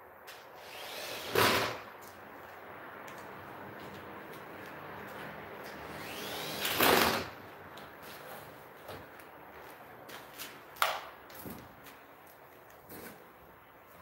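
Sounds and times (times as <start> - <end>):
cordless drill whirring: 0.6 - 1.8, 5.9 - 7.3.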